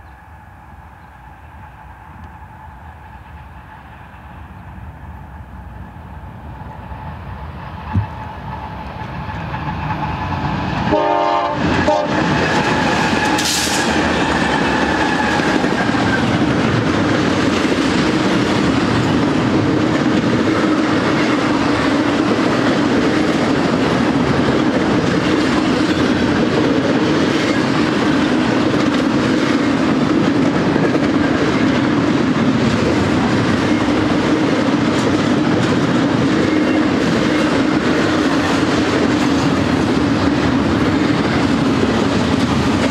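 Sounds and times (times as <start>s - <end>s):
locomotive engines passing: 0.0s - 42.9s
train wheels rumbling and clacking: 0.0s - 42.9s
train horn: 10.8s - 15.5s.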